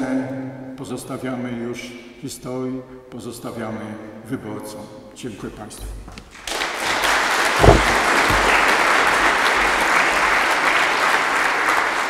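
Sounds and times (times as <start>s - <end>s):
audience applauding: 6.4s - 12.0s
low thump: 7.6s - 8.7s.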